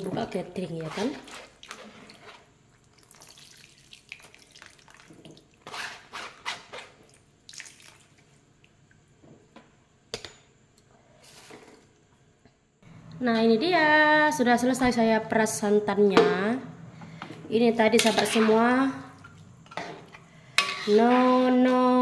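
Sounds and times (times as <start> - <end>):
liquid splashing and dripping: 2.8 - 5.6, 7.4 - 9.0.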